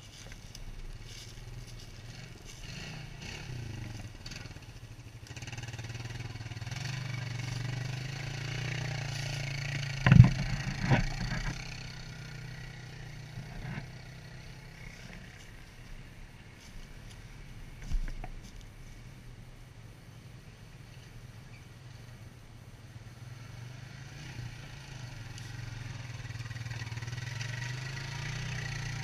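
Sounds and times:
atv engine passing: 0:00.0 - 0:18.5, 0:19.5 - 0:29.0
sharp knocks: 0:10.0 - 0:11.5.

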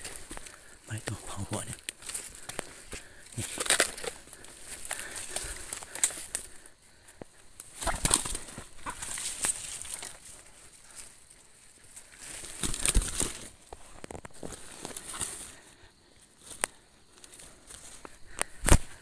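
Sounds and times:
rustling of dry leaves: 0:00.0 - 0:19.0
bird wings flapping: 0:07.6 - 0:10.4, 0:12.2 - 0:13.6.

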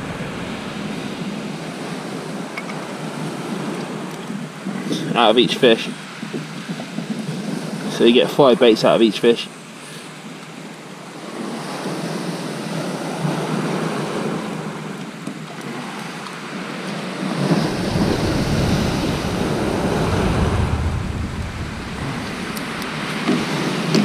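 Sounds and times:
wind buffeting microphone: 0:00.0 - 0:08.1, 0:17.2 - 0:24.0
waves breaking on shingle: 0:17.4 - 0:24.0.

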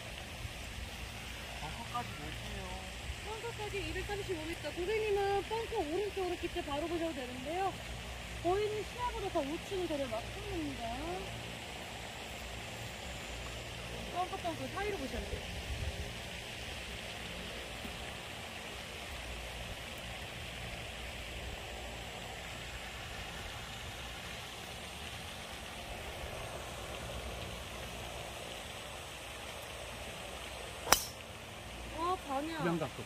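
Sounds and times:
outdoor background hiss: 0:00.0 - 0:33.0
golf club striking ball: 0:30.8 - 0:31.2.

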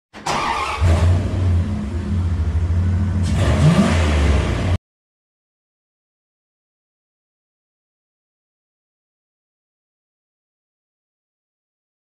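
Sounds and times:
car engine revving: 0:00.3 - 0:04.8.

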